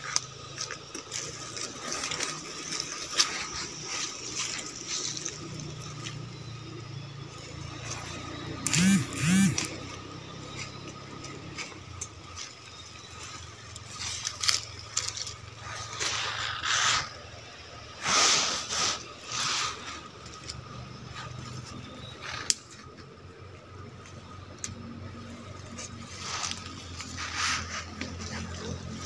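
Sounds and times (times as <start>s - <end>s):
leaves rustling through undergrowth: 0.0s - 29.0s.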